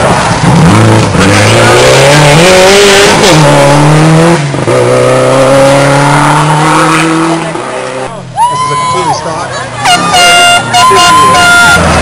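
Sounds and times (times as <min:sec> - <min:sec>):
rally car engine accelerating: 0:00.0 - 0:08.3.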